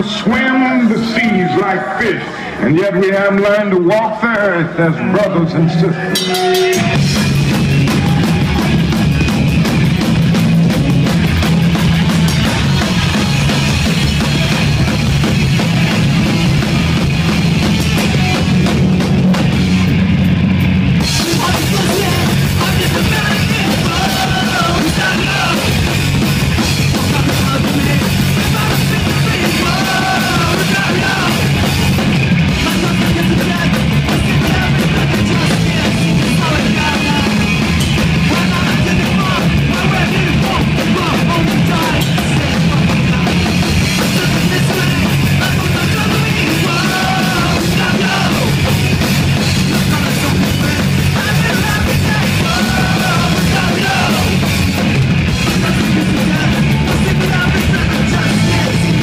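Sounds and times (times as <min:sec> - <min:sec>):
punk rock band playing: 0:00.0 - 0:59.0.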